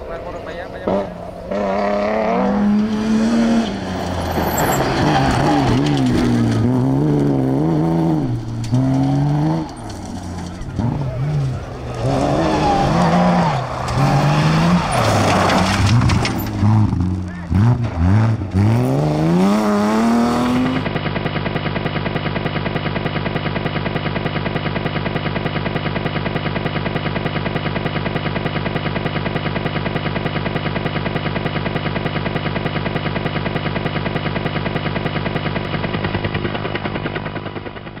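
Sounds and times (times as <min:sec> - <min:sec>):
pulsing engine-like hum: 0:00.0 - 0:38.0
rally car accelerating on gravel: 0:00.1 - 0:38.0.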